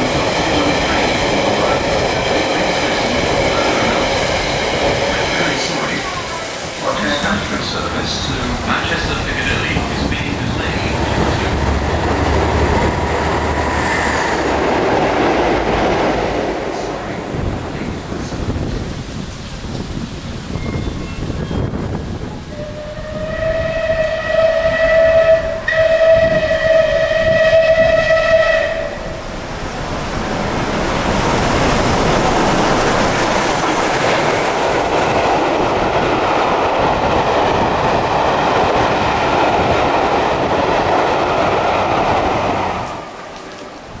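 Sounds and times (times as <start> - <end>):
train rushing past: 0.0 - 44.0
steam locomotive whistle: 22.5 - 29.2.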